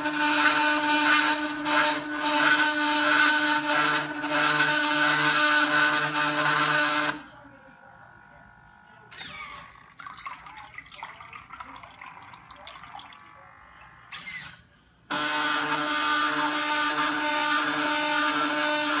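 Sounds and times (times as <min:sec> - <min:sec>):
mechanism whirring: 0:00.0 - 0:19.0
liquid dripping and bubbling: 0:09.9 - 0:13.5.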